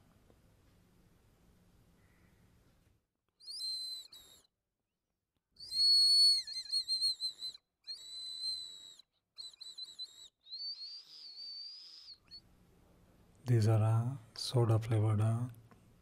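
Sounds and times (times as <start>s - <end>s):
shrill candy whistle blowing: 3.4s - 4.6s, 5.6s - 12.4s.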